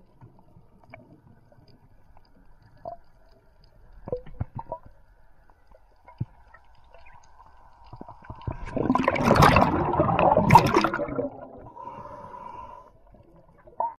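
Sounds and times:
faint clicks: 0.0 - 8.5
underwater bubbling and gurgling: 0.0 - 14.0.

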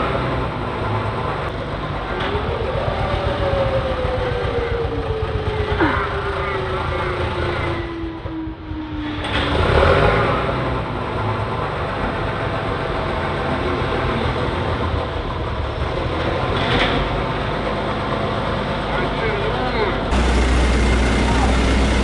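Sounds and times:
diesel truck engine labouring: 0.0 - 22.0
falling whine: 20.1 - 22.0.

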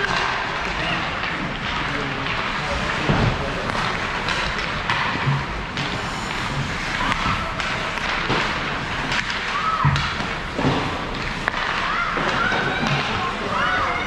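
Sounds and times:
hockey sticks and puck clacking: 0.0 - 14.0
puck hitting boards: 0.0 - 14.0
skates scraping ice: 0.0 - 14.0
young players calling: 11.6 - 14.0.

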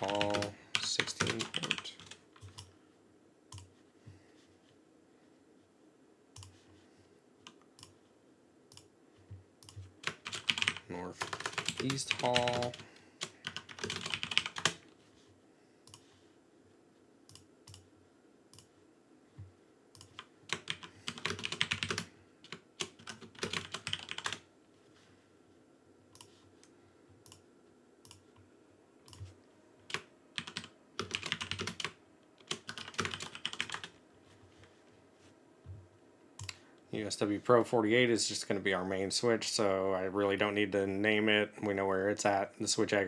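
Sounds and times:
typing on computer keyboard: 0.0 - 2.7, 9.6 - 14.8, 20.0 - 24.4, 29.9 - 33.9.

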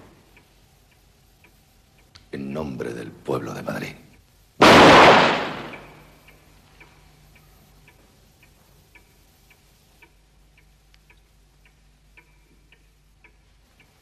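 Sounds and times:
clock ticking: 0.0 - 14.0
gunshot echo: 4.6 - 6.0.

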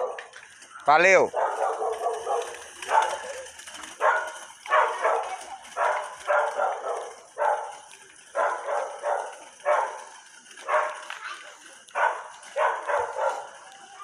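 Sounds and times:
dog barking: 0.0 - 0.3, 1.3 - 3.4, 4.0 - 7.8, 8.4 - 11.1, 12.0 - 13.6.

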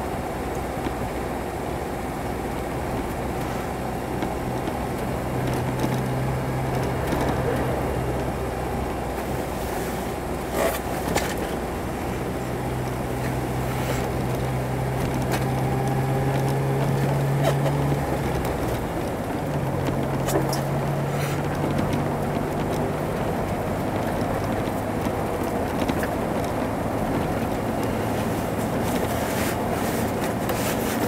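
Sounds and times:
car engine hum: 0.0 - 31.0
tyre noise on snow: 9.1 - 21.9, 26.9 - 31.0.

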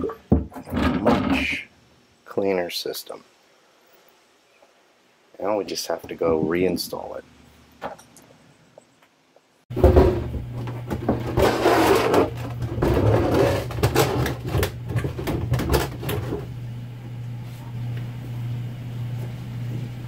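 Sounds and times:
plastic tank scraping and bumping: 0.2 - 1.5, 9.7 - 16.5
steady low hum: 9.7 - 20.0.

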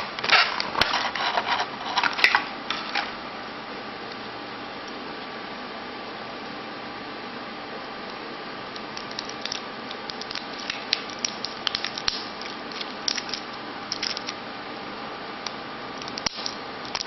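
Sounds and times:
fingernails scratching plastic wrapping: 0.0 - 3.1.

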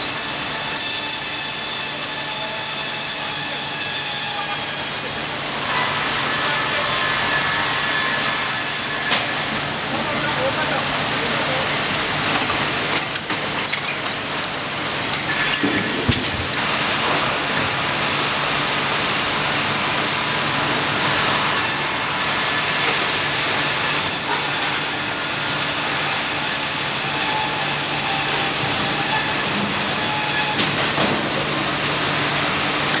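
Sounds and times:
saw blade high whine: 0.0 - 9.4
band saw machine noise: 0.0 - 33.0.

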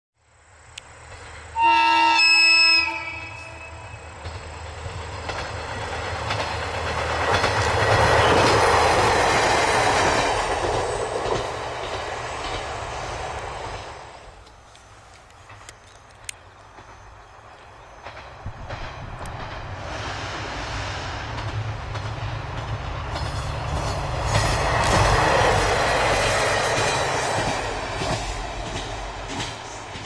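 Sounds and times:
railcar engine hum: 0.2 - 30.0
train horn: 1.6 - 4.2, 8.1 - 8.6
wheels clicking over rail joints: 3.6 - 20.0, 21.2 - 30.0.

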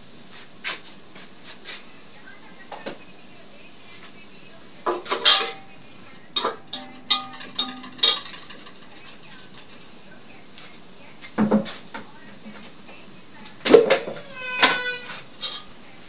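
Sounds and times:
steel pots and utensils clattering: 4.9 - 10.0, 13.7 - 15.8.

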